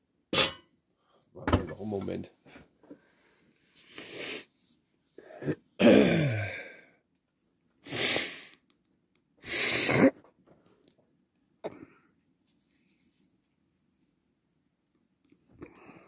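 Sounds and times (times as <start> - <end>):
man coughing: 5.4 - 6.6.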